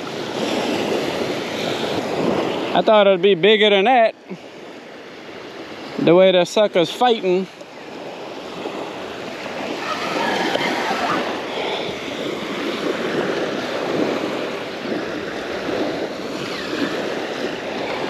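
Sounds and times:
wind on microphone: 0:00.0 - 0:02.9, 0:07.7 - 0:18.0
small waves breaking on beach: 0:00.0 - 0:18.0.

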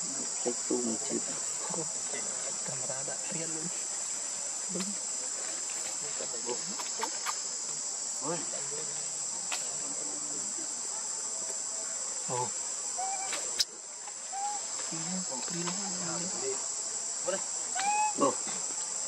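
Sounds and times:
high-pitched insect drone: 0:11.6 - 0:19.0
faint wavering calls: 0:12.4 - 0:15.1, 0:17.7 - 0:18.4.

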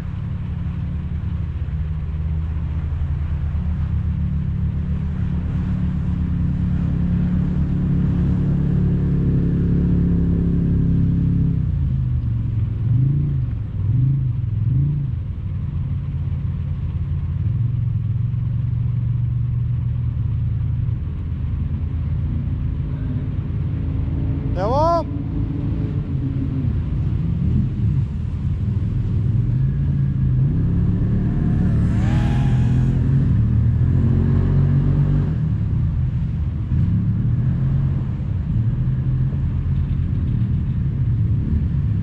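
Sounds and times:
snowmobile engine revving: 0:30.6 - 0:34.5.

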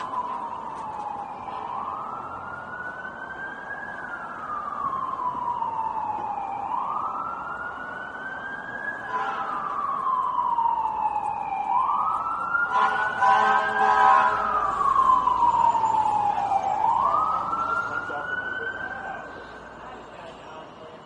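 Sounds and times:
city traffic hum: 0:00.0 - 0:21.0
emergency vehicle siren wailing: 0:00.0 - 0:21.0.

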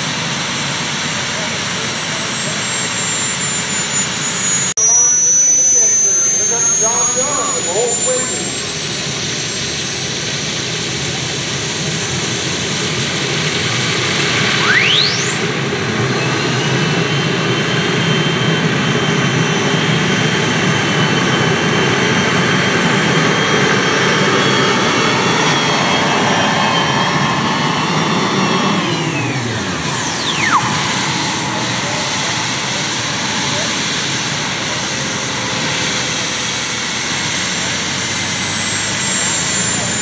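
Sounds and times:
high whine: 0:00.5 - 0:10.8, 0:14.0 - 0:18.8, 0:21.1 - 0:40.0
whistle sweeping in pitch: 0:03.6 - 0:09.2, 0:14.4 - 0:16.7, 0:29.1 - 0:34.2
tractor engine under full power: 0:17.0 - 0:40.0.

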